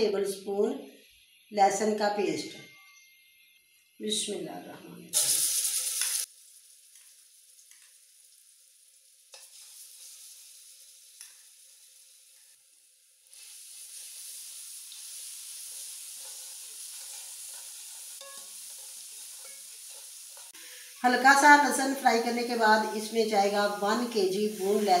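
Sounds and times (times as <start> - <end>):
garlic paste sizzling in oil: 5.1 - 25.0.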